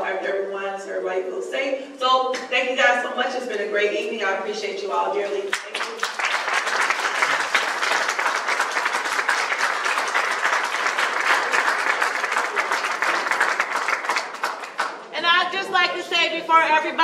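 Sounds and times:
audience applauding: 0:05.5 - 0:15.1.

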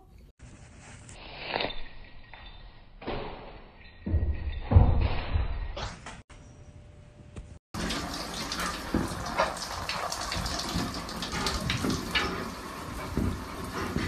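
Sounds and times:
shower water splashing on glass: 0:07.8 - 0:14.0.

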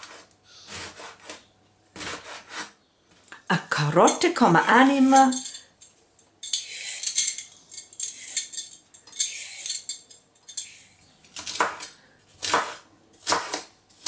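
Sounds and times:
peeler rasping carrot: 0:00.0 - 0:02.8, 0:04.1 - 0:05.4, 0:06.5 - 0:07.3
knife chopping on wooden board: 0:02.0 - 0:02.7, 0:11.4 - 0:13.7.

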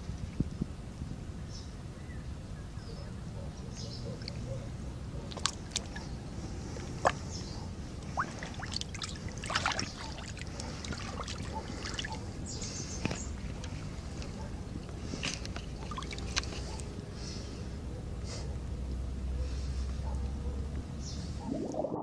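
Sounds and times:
water splashing and trickling: 0:05.3 - 0:12.3, 0:15.1 - 0:16.8
steady low rumble: 0:21.2 - 0:22.0.

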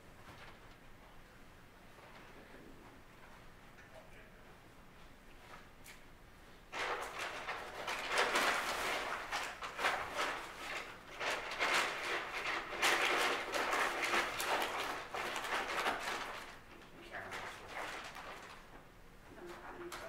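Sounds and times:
paper bag rustling and crinkling: 0:06.7 - 0:20.0.

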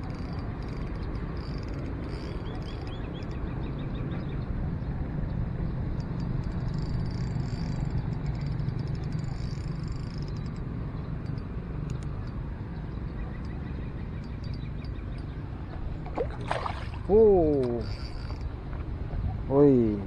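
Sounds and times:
fishing reel whirring: 0:00.0 - 0:03.5, 0:05.9 - 0:16.0, 0:16.8 - 0:18.6.

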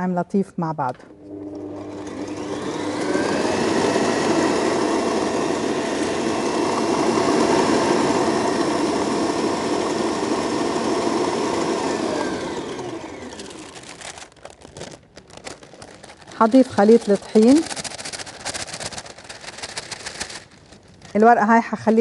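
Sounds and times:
stand mixer motor whisking: 0:01.1 - 0:14.4, 0:15.8 - 0:18.5.

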